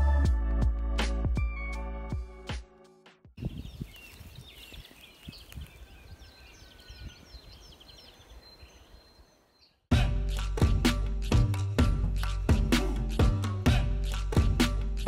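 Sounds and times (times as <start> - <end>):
small birds chirping: 3.4 - 9.9.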